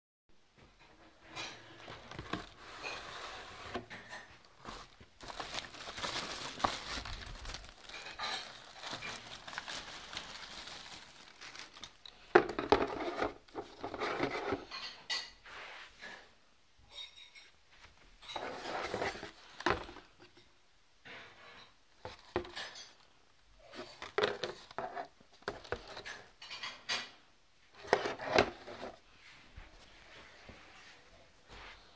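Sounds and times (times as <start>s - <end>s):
cardboard box rustling: 1.8s - 14.7s, 18.4s - 20.1s, 27.8s - 29.0s
plastic bag crinkling: 4.0s - 14.0s.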